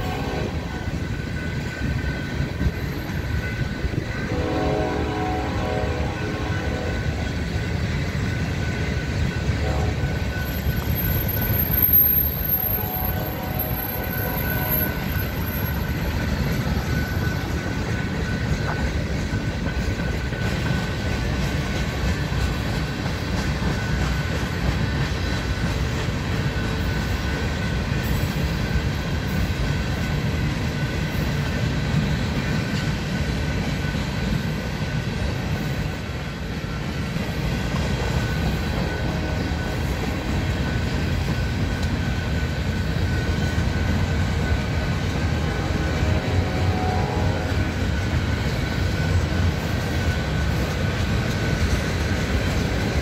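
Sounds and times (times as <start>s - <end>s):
freight train rolling past: 0.0s - 53.0s
steel wheels clattering on rails: 0.0s - 53.0s
high-pitched ring: 5.5s - 21.1s.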